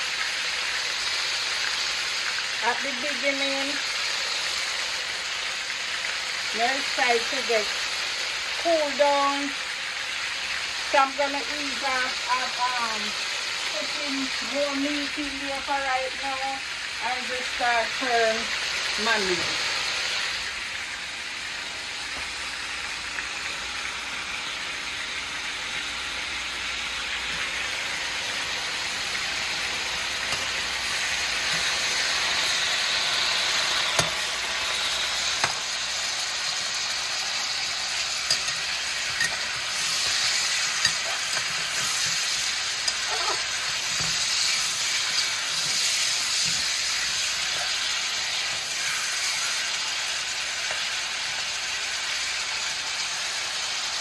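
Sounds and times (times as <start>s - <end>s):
meat sizzling in hot oil: 0.0s - 54.0s
spatula clicking and scraping pan: 30.2s - 31.8s, 33.8s - 34.3s, 35.3s - 35.7s, 38.0s - 49.6s.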